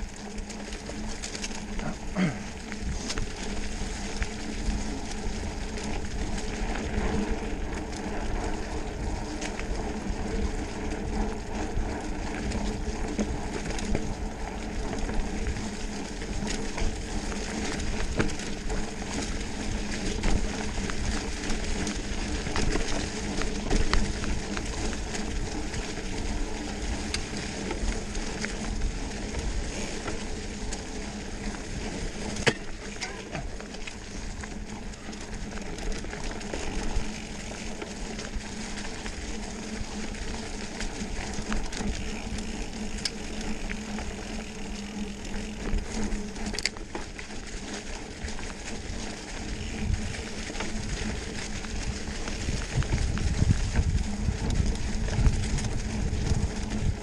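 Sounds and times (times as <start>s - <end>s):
bike clicks and rattles: 0.0s - 57.0s
bike tyres rushing over leaves: 0.0s - 57.0s.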